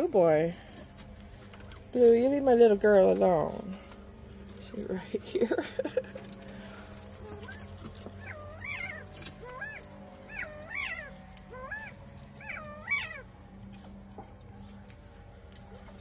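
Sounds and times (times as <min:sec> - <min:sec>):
quail calling: 0:06.6 - 0:13.3.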